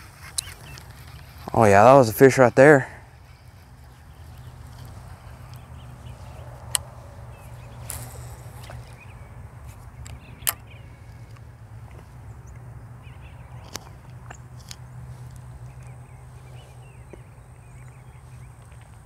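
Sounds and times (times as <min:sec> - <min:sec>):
fishing reel whirring: 0:06.6 - 0:09.2
fishing reel clicks: 0:07.6 - 0:09.0.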